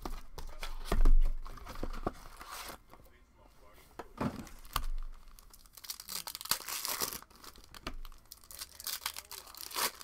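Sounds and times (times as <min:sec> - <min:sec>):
foil wrapper tearing and crinkling: 0:04.6 - 0:10.0.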